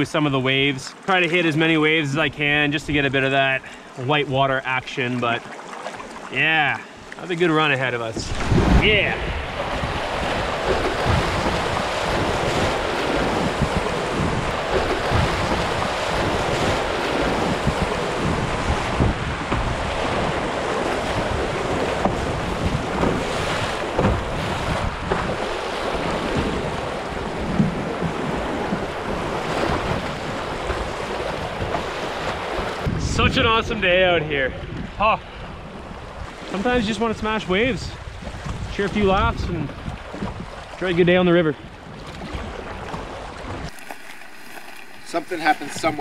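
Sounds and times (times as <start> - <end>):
wind buffeting microphone: 8.1 - 46.0
river water rushing over rapids: 43.7 - 46.0.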